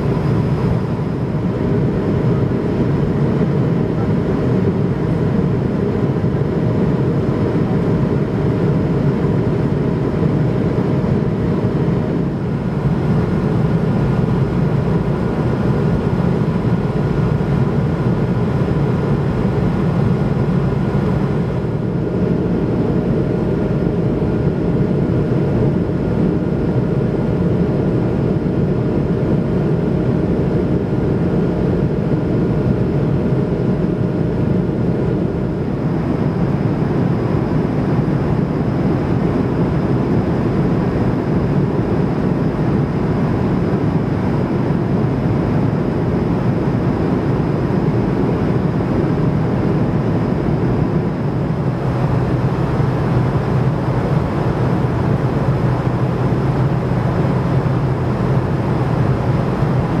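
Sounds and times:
faint steady whine: 0.0s - 60.0s
jet engines droning: 0.0s - 60.0s
low hum: 47.9s - 60.0s.

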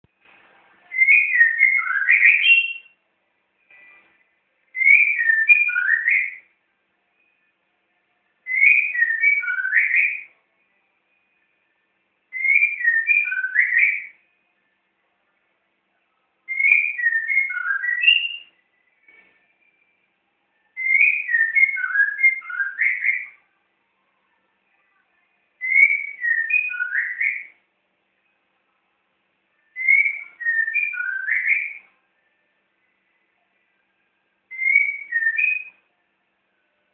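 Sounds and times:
bird singing whistled notes: 0.9s - 3.0s, 4.7s - 6.6s, 8.4s - 10.4s, 12.3s - 14.3s, 16.4s - 23.4s, 25.6s - 27.6s, 29.5s - 33.4s, 34.5s - 35.9s.

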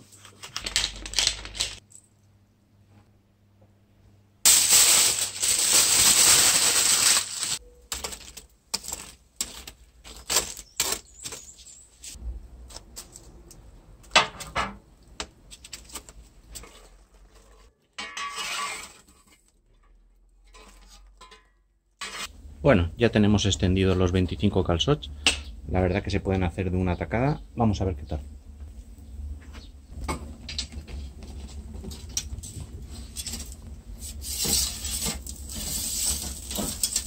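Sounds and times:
metal shovel scraping embers: 16.5s - 22.4s, 31.9s - 37.0s.

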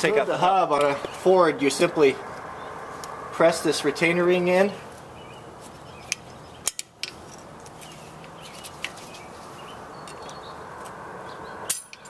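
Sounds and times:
pliers clicking on metal ring: 6.1s - 7.4s, 11.7s - 12.0s.

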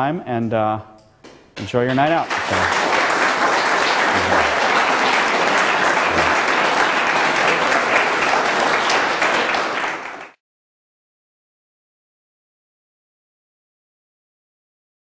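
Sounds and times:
audience applauding: 1.7s - 10.4s.

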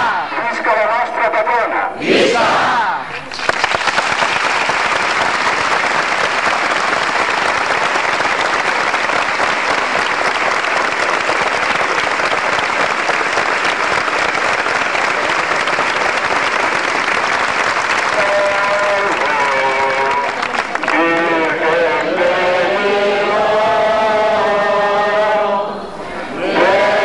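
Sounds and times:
crowd applauding: 3.2s - 22.2s.

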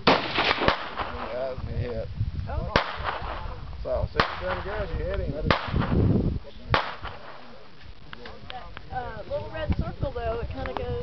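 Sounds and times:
rifle shots: 0.0s - 1.4s, 2.7s - 3.5s, 4.2s - 6.0s, 6.7s - 7.6s.

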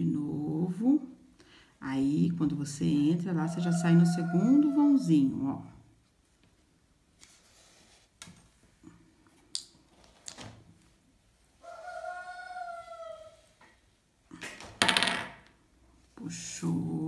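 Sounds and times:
rooster crowing: 3.3s - 5.3s, 11.6s - 13.4s.

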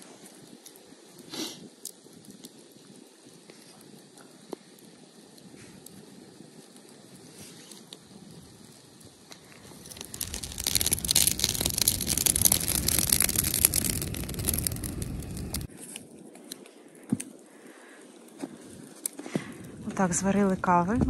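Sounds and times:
rush of flame: 0.0s - 20.6s
campfire crackling and popping: 0.0s - 21.0s.

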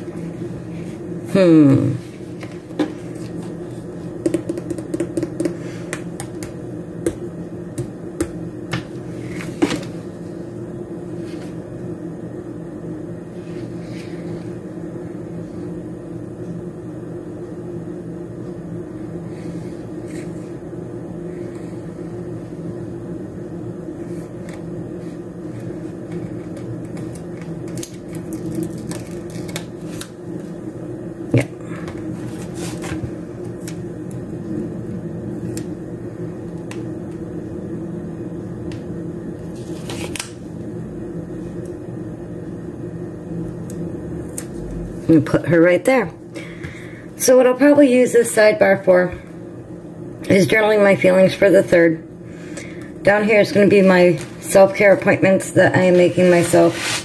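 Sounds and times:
low motor hum: 40.4s - 45.4s
sticker sheet rustling: 56.0s - 57.0s.

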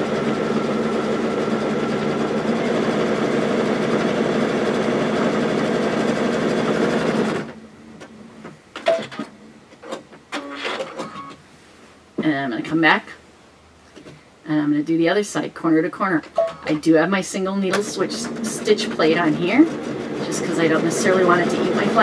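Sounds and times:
sewing machine running: 0.0s - 7.6s, 17.7s - 22.0s.

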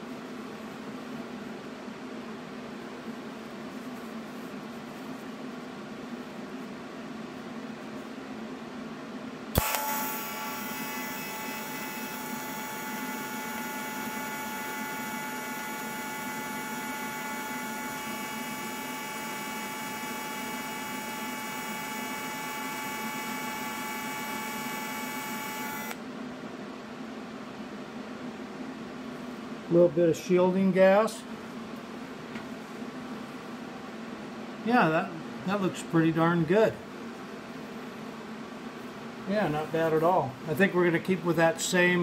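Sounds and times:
welding arc hiss and whine: 0.0s - 8.5s, 9.4s - 26.1s, 29.1s - 42.0s
welding arc striking crack: 9.6s - 10.1s.

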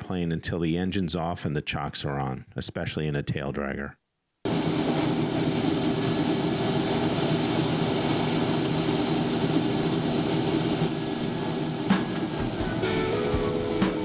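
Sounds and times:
turboprop engine hum with whine: 4.5s - 13.8s.

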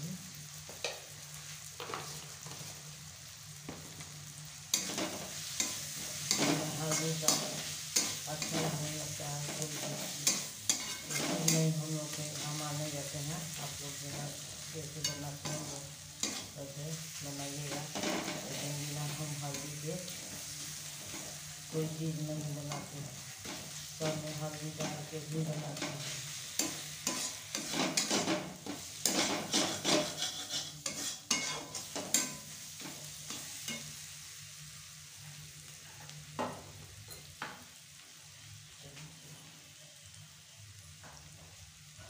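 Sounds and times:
food sizzling in oil: 0.0s - 42.0s
spatula scraping the pan: 4.7s - 12.6s, 17.6s - 21.4s, 25.7s - 34.0s.

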